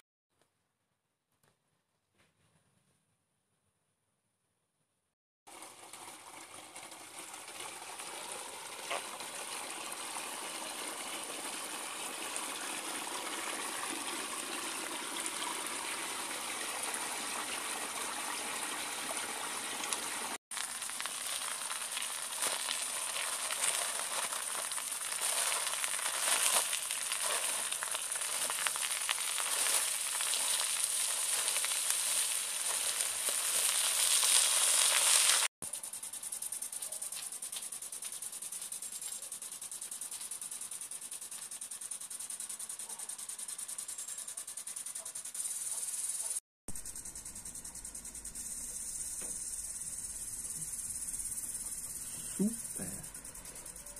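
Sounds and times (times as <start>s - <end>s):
water trickling in stream: 5.5s - 35.5s
potatoes sizzling on foil: 20.5s - 35.5s.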